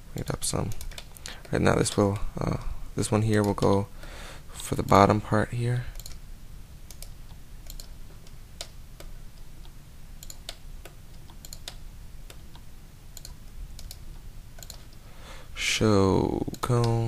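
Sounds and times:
faint low hum: 0.0s - 17.0s
keyboard and mouse clicks: 0.6s - 2.1s, 5.9s - 6.2s, 6.9s - 15.0s.

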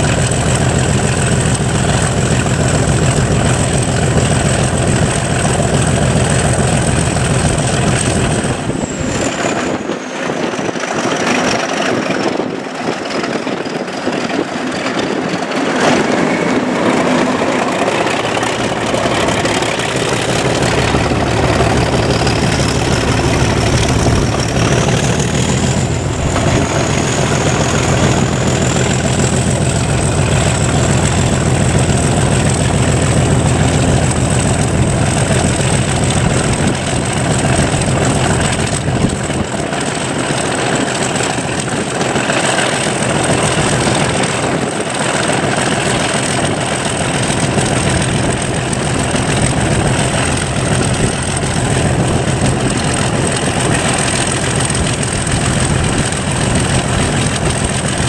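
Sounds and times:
diesel locomotive engine: 0.0s - 58.0s.

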